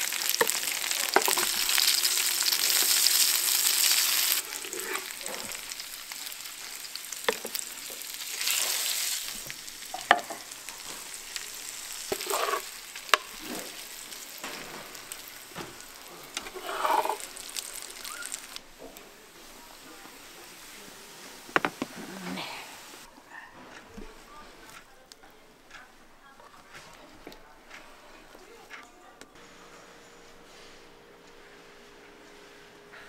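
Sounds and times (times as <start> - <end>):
food sizzling in a pan: 0.0 - 23.1.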